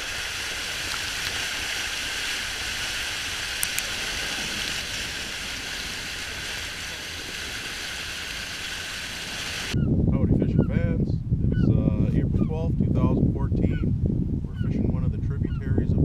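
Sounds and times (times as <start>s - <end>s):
sharp clicks: 3.6s - 3.9s.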